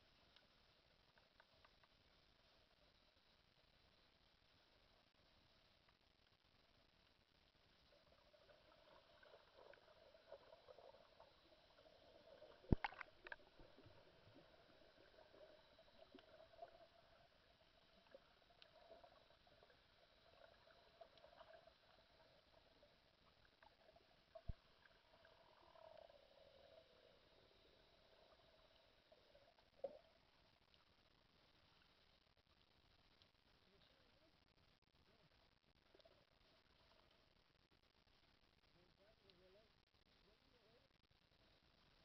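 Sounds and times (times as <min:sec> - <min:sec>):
soft ticks: 0:00.0 - 0:03.0, 0:05.5 - 0:06.5, 0:31.6 - 0:34.0, 0:35.8 - 0:37.2
muffled underwater ambience: 0:00.0 - 0:42.0.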